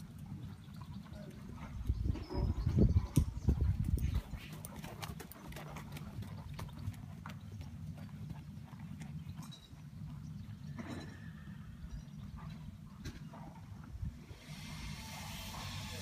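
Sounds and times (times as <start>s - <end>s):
horse trotting on soft footing: 0.0s - 11.3s.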